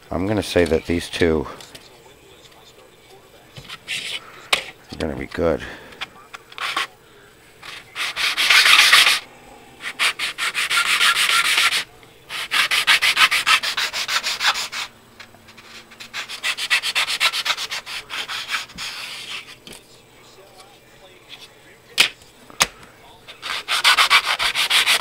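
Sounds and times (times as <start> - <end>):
plastic scraping on sandpaper: 6.5 - 6.9, 7.6 - 9.2, 9.8 - 14.9, 15.5 - 19.6, 23.3 - 25.0.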